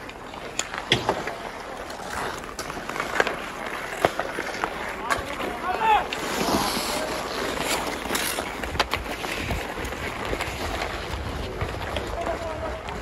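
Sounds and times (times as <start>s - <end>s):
skate blades scraping ice: 0.0s - 13.0s
sticks clicking on puck: 0.0s - 13.0s
wind rumble on microphone: 8.6s - 13.0s.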